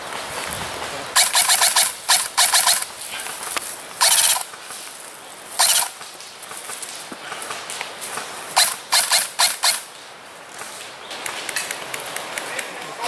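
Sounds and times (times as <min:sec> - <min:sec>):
airsoft rifle firing bursts: 0:01.2 - 0:02.9, 0:04.0 - 0:04.5, 0:05.6 - 0:06.0, 0:08.6 - 0:09.9.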